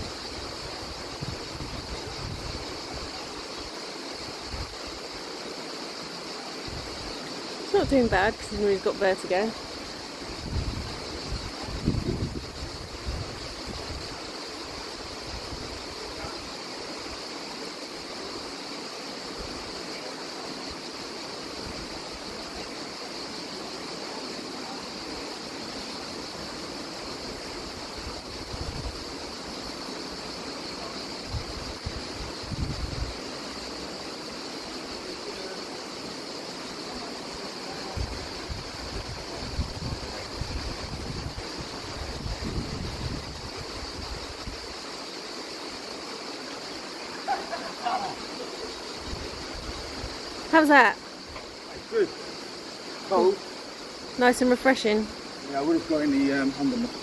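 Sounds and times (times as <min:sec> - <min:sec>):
wind gusts buffeting microphone: 0:00.0 - 0:03.4, 0:06.6 - 0:16.5, 0:27.2 - 0:29.6, 0:30.6 - 0:33.3, 0:37.8 - 0:44.9, 0:47.2 - 0:52.1
constant high hiss: 0:00.0 - 0:57.0
sea surf on rocky shore: 0:00.0 - 0:57.0.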